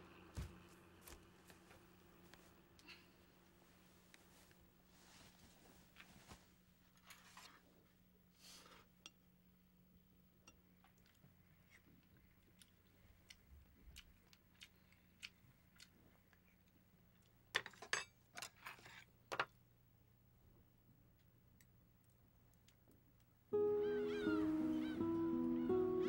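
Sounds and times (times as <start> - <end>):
music with gliding notes: 23.5 - 26.0.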